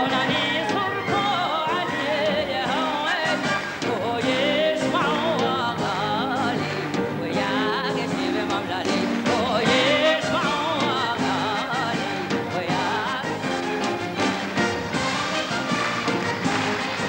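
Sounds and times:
woman singing into a microphone: 0:00.0 - 0:13.5
orchestra: 0:00.0 - 0:17.0.

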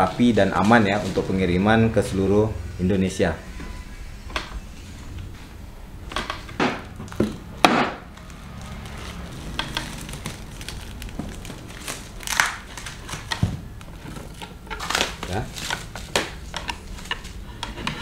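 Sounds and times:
plastic wrap crinkling: 0:00.0 - 0:02.0, 0:08.0 - 0:17.5
wooden slats knocking and creaking: 0:06.1 - 0:08.1.

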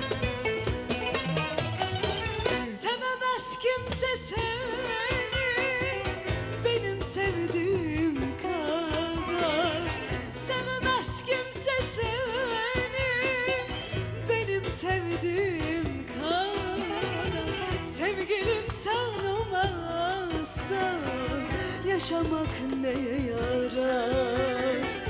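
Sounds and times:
woman singing with vibrato: 0:02.6 - 0:25.0.

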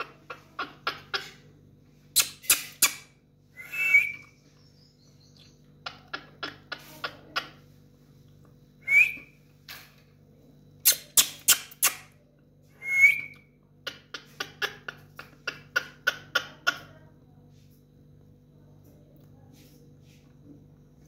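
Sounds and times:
parakeet chattering calls: 0:00.0 - 0:01.5, 0:02.2 - 0:03.2, 0:13.8 - 0:17.0.

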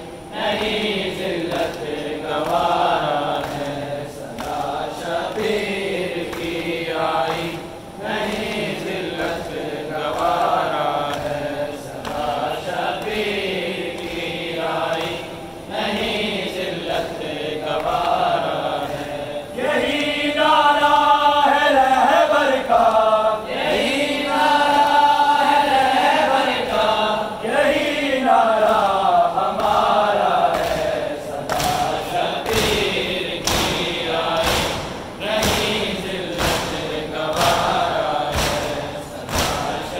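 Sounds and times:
voices chanting a lament: 0:00.0 - 0:39.9.

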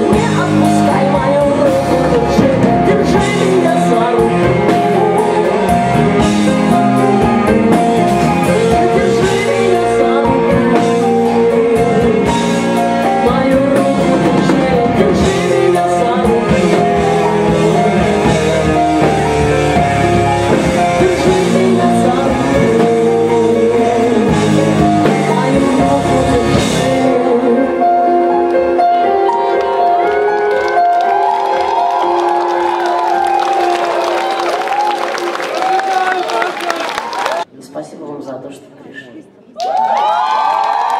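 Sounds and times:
woman singing: 0:00.0 - 0:19.7, 0:20.5 - 0:28.3
drum kit: 0:00.0 - 0:27.6
live rock band playing: 0:00.0 - 0:35.9.

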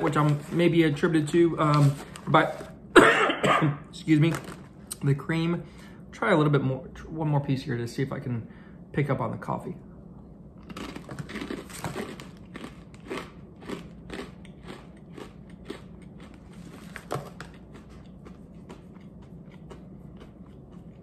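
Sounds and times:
pretzel bite being chewed: 0:10.6 - 0:21.0.

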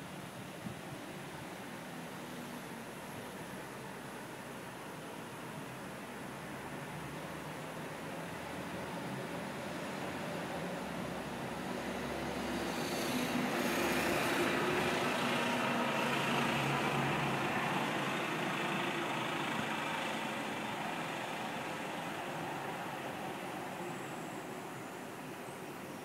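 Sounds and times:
vehicle passing by: 0:11.7 - 0:23.8.

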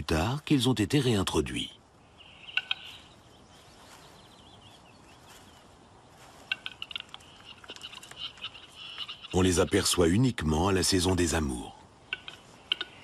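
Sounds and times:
bird dry clicks: 0:02.5 - 0:02.9, 0:06.4 - 0:09.1, 0:12.0 - 0:13.0.

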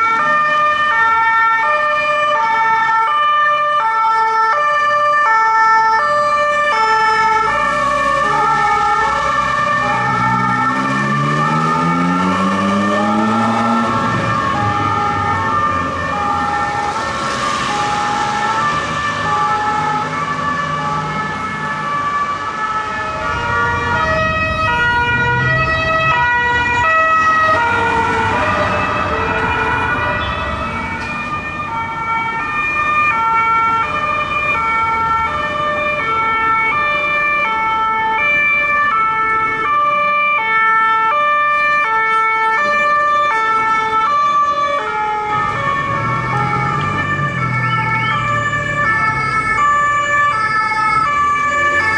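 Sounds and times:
two-tone police sirens: 0:00.0 - 0:51.9
vehicles rushing past: 0:04.8 - 0:51.9.

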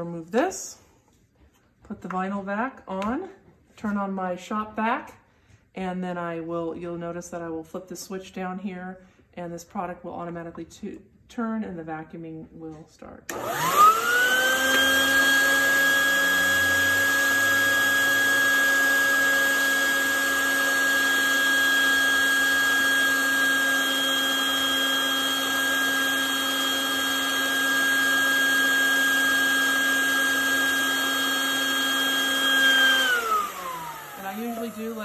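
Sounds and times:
vacuum motor whine: 0:13.3 - 0:35.0.

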